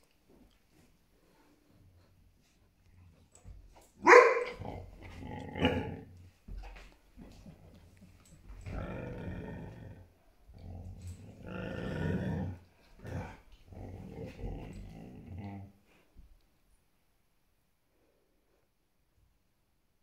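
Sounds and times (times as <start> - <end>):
dogs growling: 4.4 - 6.3, 7.2 - 15.9.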